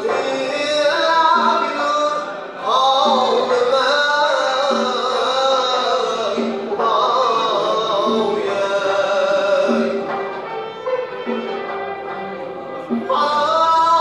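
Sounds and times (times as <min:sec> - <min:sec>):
man singing ornamented phrases: 0:00.0 - 0:10.2, 0:13.1 - 0:14.0
string ensemble accompaniment: 0:00.0 - 0:14.0.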